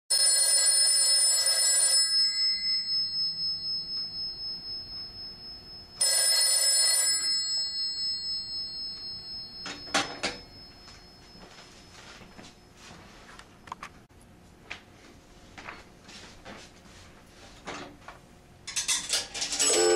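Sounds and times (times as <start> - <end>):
payphone bell ringing: 0.1 - 12.2, 19.6 - 19.9.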